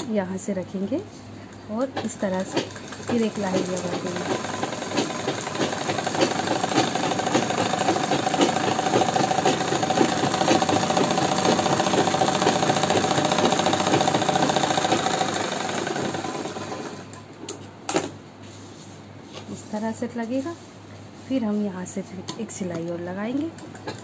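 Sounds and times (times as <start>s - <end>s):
sewing machine running: 2.2s - 17.2s.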